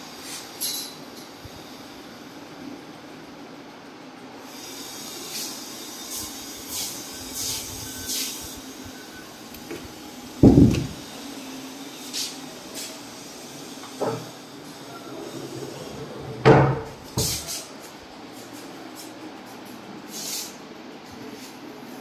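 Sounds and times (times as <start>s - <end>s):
heavy door thud: 10.4s - 11.0s.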